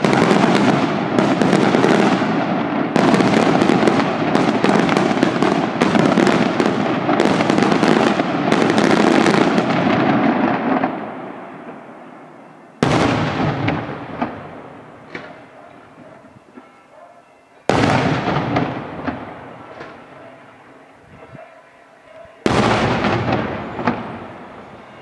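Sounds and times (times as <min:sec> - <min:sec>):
fireworks bangs and crackles: 0:00.0 - 0:16.7, 0:17.6 - 0:21.5, 0:22.1 - 0:25.0
loud echoing firework bang: 0:12.8 - 0:15.6, 0:17.7 - 0:20.3, 0:22.4 - 0:24.9
small firework pops: 0:15.1 - 0:15.5, 0:17.7 - 0:20.0.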